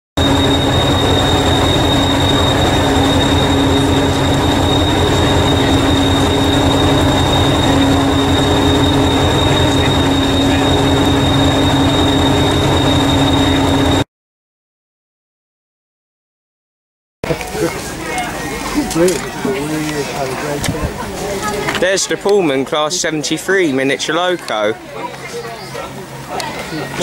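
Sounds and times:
constant high whine: 0.2s - 14.0s
diesel engine idling: 0.2s - 14.0s.

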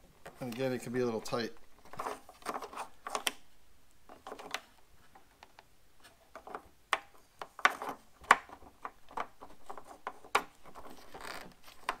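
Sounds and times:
handling rustles: 0.1s - 3.3s
plastic clicks and scrapes: 1.8s - 3.4s, 4.1s - 12.0s.

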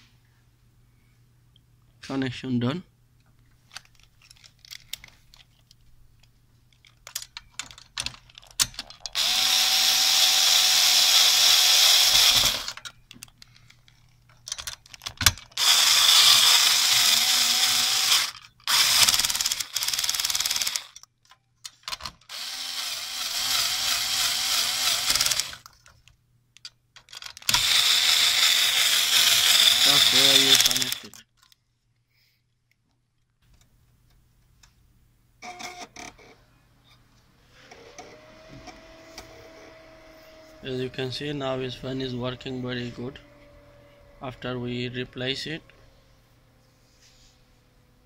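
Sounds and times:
clicks and handling noise: 3.2s - 9.3s, 12.4s - 15.7s, 20.7s - 22.4s, 25.1s - 27.8s, 30.0s - 31.7s
power tool motor whine: 9.2s - 12.8s, 15.6s - 20.9s, 22.3s - 25.6s, 27.5s - 31.1s, 37.6s - 46.1s.

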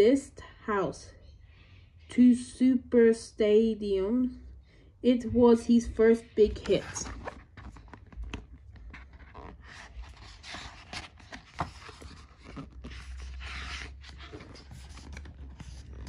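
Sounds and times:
book pages turning: 6.4s - 16.0s.

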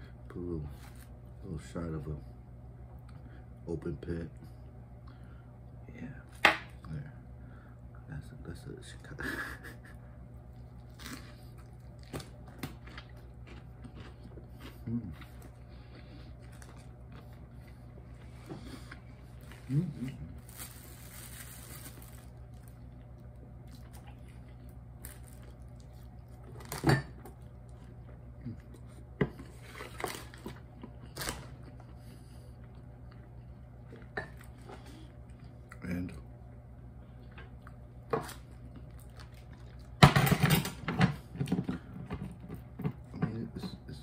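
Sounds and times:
steady low hum: 0.0s - 44.0s
soft eating squishes and clicks: 10.4s - 40.0s
chewing and mouth noises: 10.6s - 20.2s, 22.7s - 29.0s
sandwich crackling crunch: 10.6s - 28.9s, 29.5s - 31.9s, 37.5s - 40.0s.

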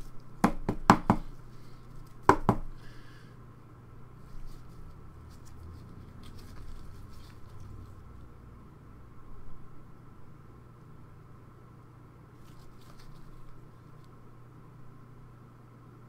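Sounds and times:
cards rustling: 4.3s - 7.9s, 12.4s - 14.1s.

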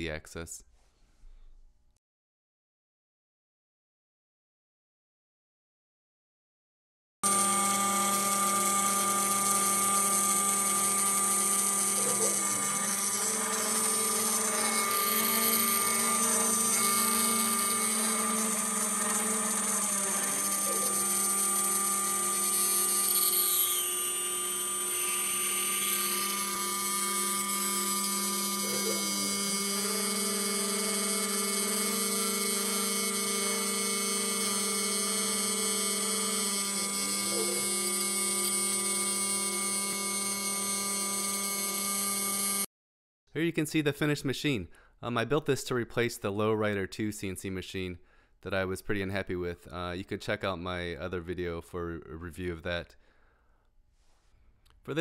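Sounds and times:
cnc router spindle whine: 7.2s - 42.7s.

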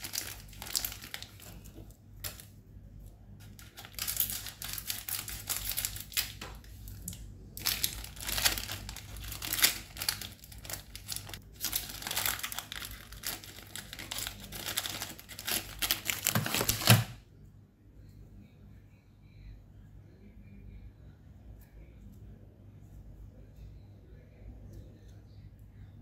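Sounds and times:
plastic wrapper crinkling: 0.0s - 2.5s, 3.4s - 17.2s.

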